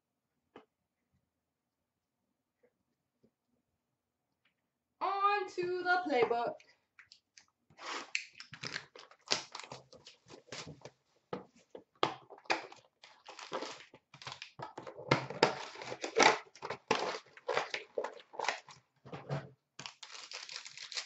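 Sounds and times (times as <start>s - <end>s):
packaging crinkling and rustling: 8.4s - 11.0s, 12.3s - 18.8s, 19.8s - 21.0s.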